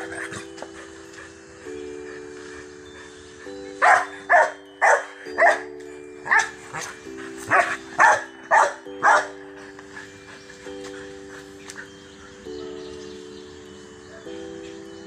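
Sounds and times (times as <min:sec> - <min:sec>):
background music chords: 0:00.0 - 0:15.0
dog barking: 0:03.8 - 0:09.4.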